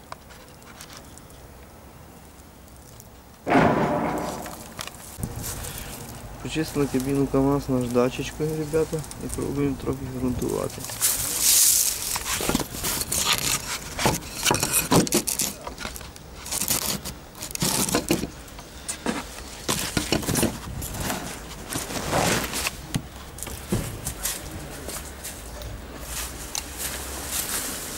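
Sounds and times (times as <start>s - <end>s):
footsteps on dry leaves: 4.0s - 13.8s, 24.1s - 27.9s.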